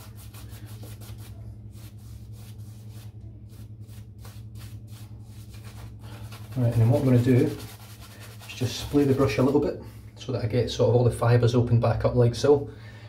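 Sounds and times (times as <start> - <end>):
shaving brush strokes: 0.0 - 9.6.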